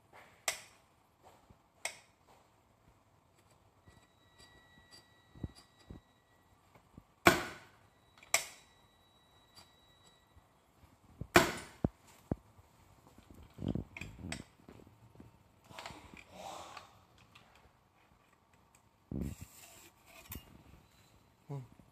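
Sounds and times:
metal scraping: 19.2s - 21.1s.

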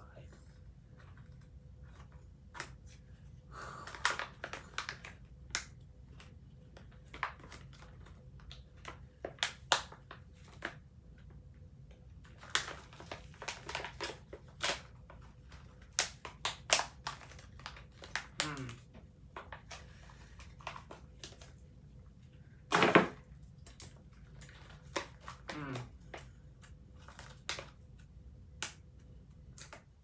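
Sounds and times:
plastic bag crinkling: 12.2s - 18.8s, 26.6s - 27.8s.

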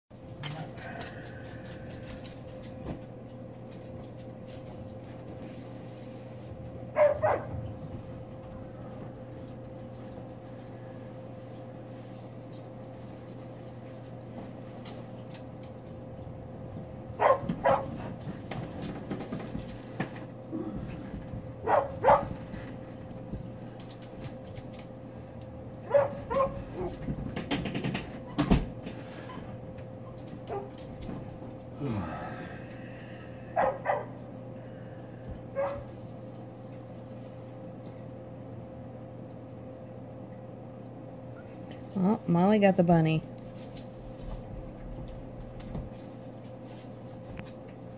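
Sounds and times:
steady hum: 0.1s - 47.9s
dog barking: 7.0s - 7.6s, 17.2s - 18.0s, 21.6s - 22.4s, 25.8s - 27.0s, 30.5s - 30.7s, 33.6s - 34.2s, 35.6s - 35.9s.

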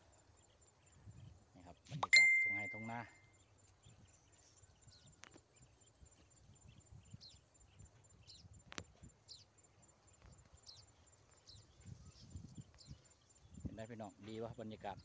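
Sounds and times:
short high chirps: 1.9s - 3.2s.

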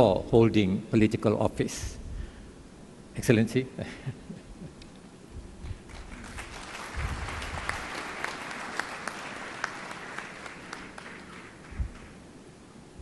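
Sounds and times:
audience applauding: 5.9s - 12.2s.

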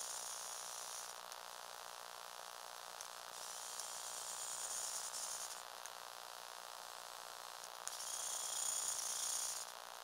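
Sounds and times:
electric motor whine: 7.9s - 9.7s.

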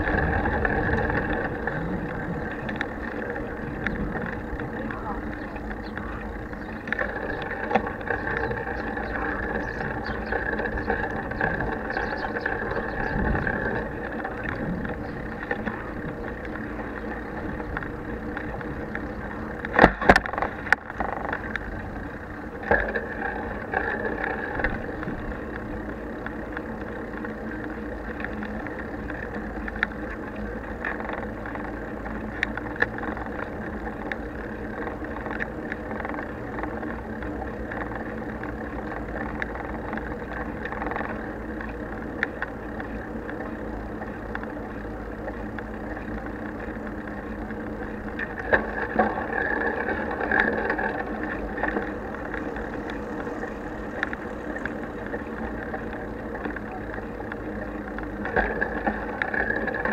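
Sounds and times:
bicycle tyres rolling on asphalt: 0.0s - 59.9s.

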